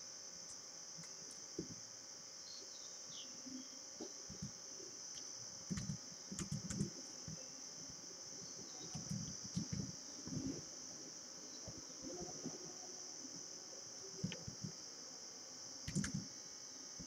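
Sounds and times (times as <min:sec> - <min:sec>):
steady high-pitched hiss: 0:00.0 - 0:17.0
soft typing on keyboard: 0:04.3 - 0:04.6, 0:05.2 - 0:07.4, 0:08.8 - 0:10.6, 0:14.2 - 0:14.8, 0:15.9 - 0:16.3.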